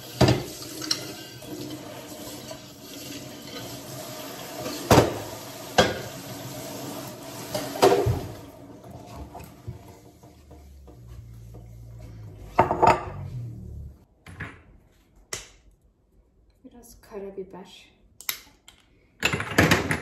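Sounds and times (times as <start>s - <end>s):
kitchen tap running into sink: 0.0s - 11.8s
dishes clattering against sink: 0.2s - 2.0s, 4.6s - 6.2s, 7.5s - 8.4s.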